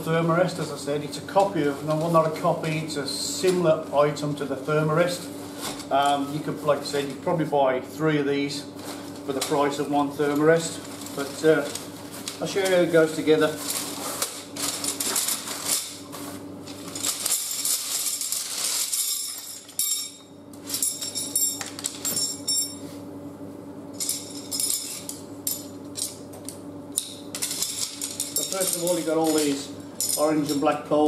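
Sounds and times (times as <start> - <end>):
fabric sack rustling: 10.7 - 17.0
metal poles clinking and rattling: 27.0 - 30.6.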